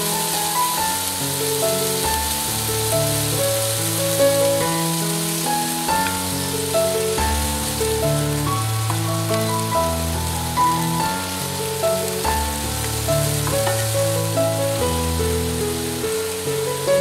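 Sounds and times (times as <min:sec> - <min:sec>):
shrimp sizzling in a frying pan: 0:00.0 - 0:17.0.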